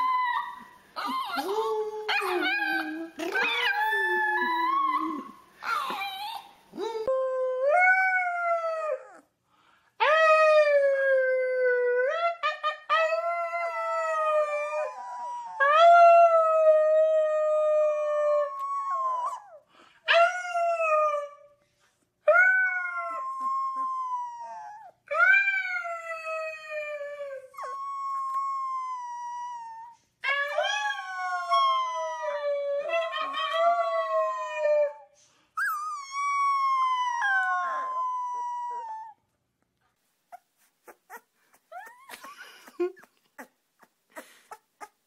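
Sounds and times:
puppy howling: 0:35.7 - 0:39.2.

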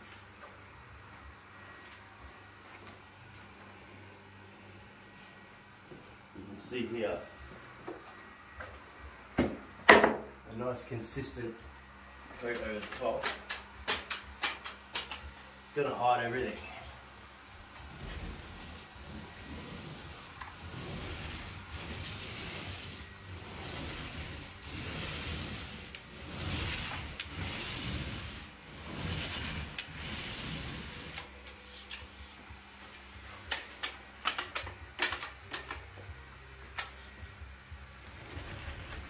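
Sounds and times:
paint roller rasping on ceiling: 0:15.8 - 0:17.0, 0:17.6 - 0:33.4, 0:37.0 - 0:39.0.

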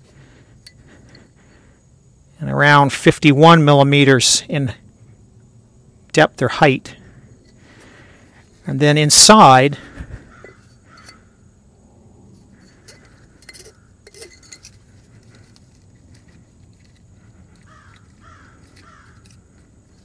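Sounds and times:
metal tool clicks and clinks: 0:10.4 - 0:11.2, 0:12.6 - 0:20.0.

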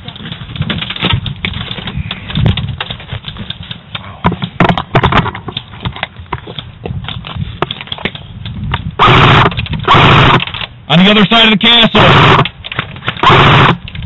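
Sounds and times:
clicks and knocks of handling: 0:00.0 - 0:08.9, 0:09.5 - 0:10.8, 0:12.4 - 0:13.2
footsteps: 0:00.0 - 0:09.0.

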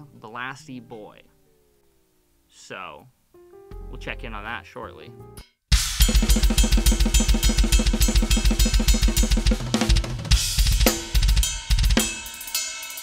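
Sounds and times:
bass drum strokes: 0:05.7 - 0:12.3
snare drum: 0:05.7 - 0:12.5
cymbals: 0:05.7 - 0:13.0.

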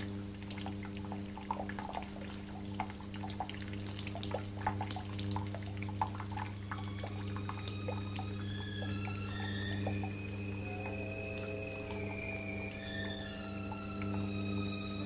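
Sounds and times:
steady low hum: 0:00.0 - 0:15.0
water dripping and trickling: 0:00.0 - 0:15.0
high held tones: 0:06.6 - 0:15.0.

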